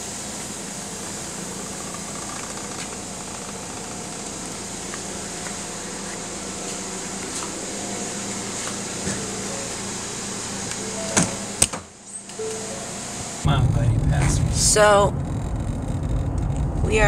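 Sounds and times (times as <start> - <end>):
high hiss: 0.0 - 15.0
mechanical hum: 0.0 - 17.0.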